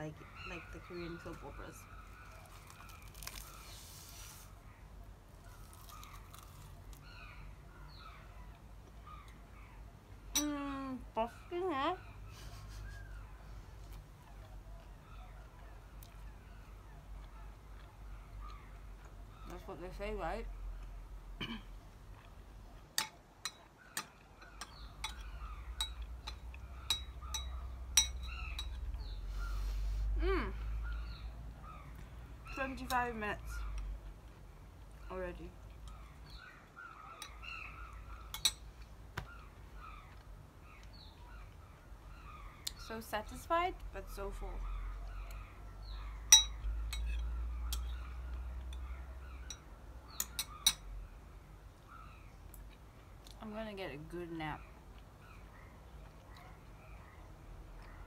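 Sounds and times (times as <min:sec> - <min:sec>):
spoon clinking against ceramic bowl: 0:25.8 - 0:28.8, 0:38.3 - 0:38.6, 0:46.3 - 0:47.9.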